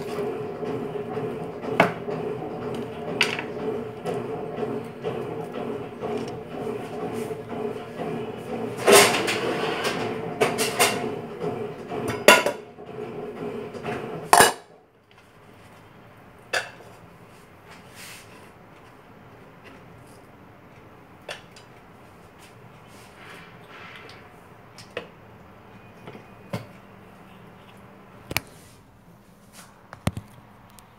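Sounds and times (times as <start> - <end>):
cookware and cutlery clattering: 14.4 - 14.7.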